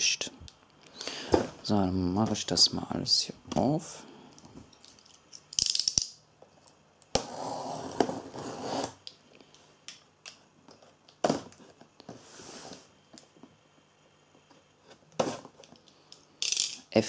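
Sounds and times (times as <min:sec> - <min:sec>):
blade scraping cardboard: 0:07.2 - 0:09.0.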